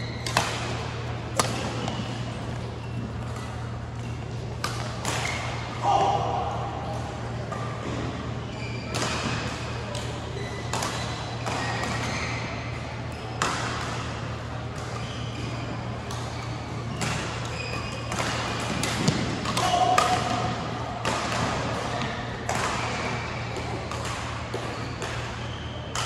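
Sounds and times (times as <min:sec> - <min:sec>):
steady low hum: 0:00.0 - 0:26.0
rackets striking shuttlecock: 0:00.2 - 0:05.8, 0:16.1 - 0:26.0.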